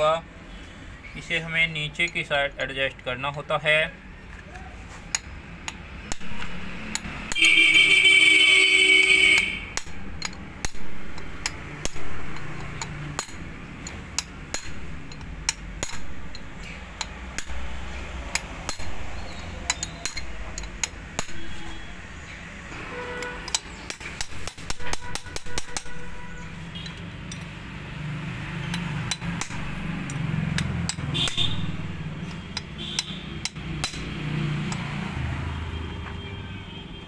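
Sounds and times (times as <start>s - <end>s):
hammered steel rod knocks: 28.7s - 34.9s.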